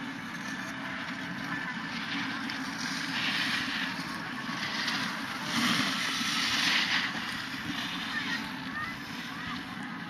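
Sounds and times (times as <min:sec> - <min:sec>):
snowboard scraping snow: 0:03.0 - 0:08.4.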